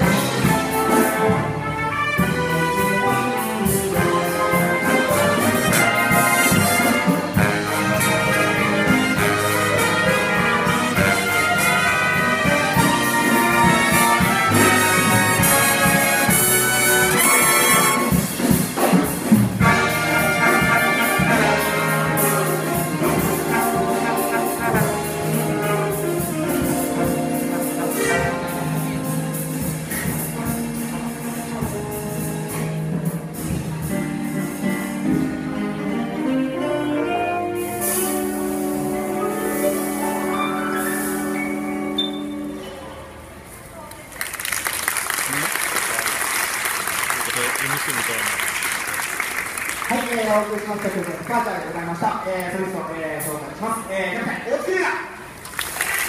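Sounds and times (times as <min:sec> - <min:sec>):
big band jazz: 0:00.0 - 0:56.0.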